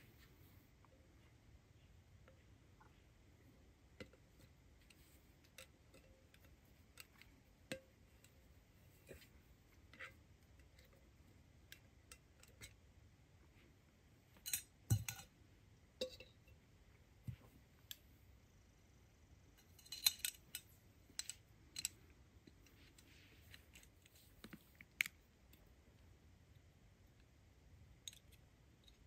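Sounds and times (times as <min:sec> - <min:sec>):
camp cooking gear clinking: 0:19.6 - 0:22.0.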